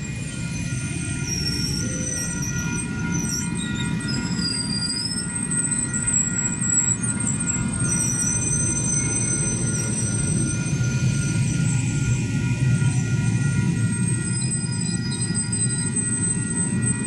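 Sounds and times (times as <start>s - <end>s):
high-pitched wheel squeals: 0.0s - 17.0s
train wheels rumbling on rail: 0.0s - 17.0s.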